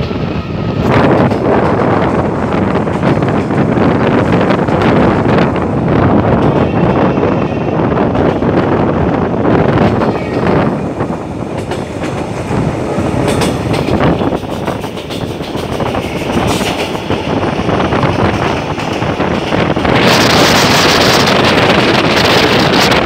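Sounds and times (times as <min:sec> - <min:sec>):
train rumbling: 0:00.0 - 0:23.0
wheels clacking over rail joints: 0:09.6 - 0:21.3.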